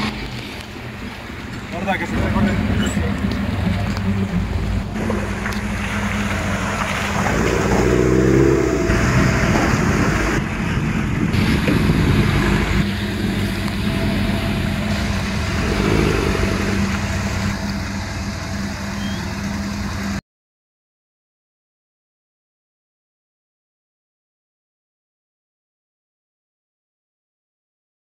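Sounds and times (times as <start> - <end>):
jeep engine running: 0.0 - 20.2
water washing around tyres: 0.0 - 20.2.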